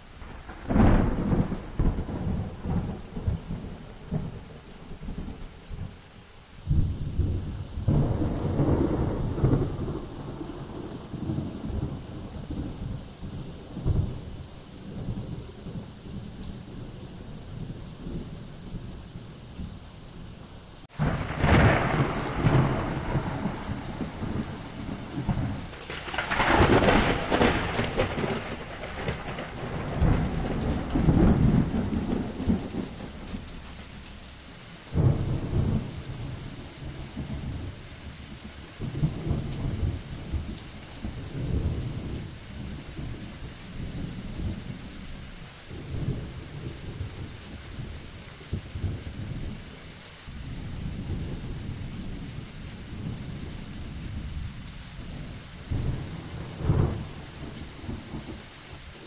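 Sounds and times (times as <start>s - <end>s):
rolling thunder: 0.0s - 5.9s, 6.6s - 19.9s, 20.9s - 49.7s, 50.3s - 59.0s
steady rain: 0.0s - 59.0s.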